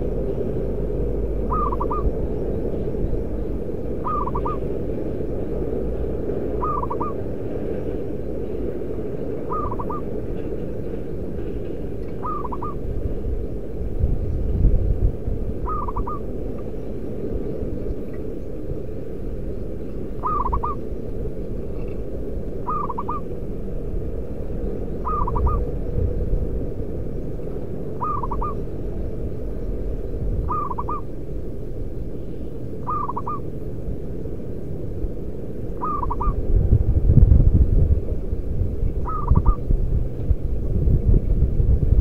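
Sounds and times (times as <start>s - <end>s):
low background noise: 0.0s - 42.0s
dove cooing: 1.4s - 2.2s, 4.0s - 4.8s, 6.6s - 7.3s, 9.4s - 10.1s, 12.1s - 12.8s, 15.6s - 16.3s, 20.2s - 20.9s, 22.6s - 23.3s, 25.0s - 25.7s, 28.0s - 28.6s, 30.5s - 31.1s, 32.8s - 33.5s, 35.8s - 36.4s, 39.0s - 39.6s.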